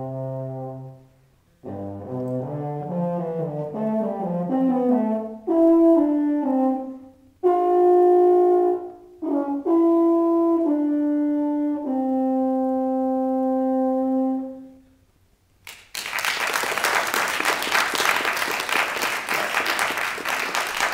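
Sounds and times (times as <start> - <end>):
audience applause: 15.7 - 20.9.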